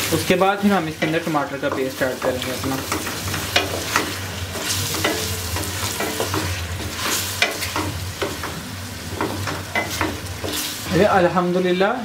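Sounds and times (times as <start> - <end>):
chicken sizzling in a pot: 0.0 - 12.0.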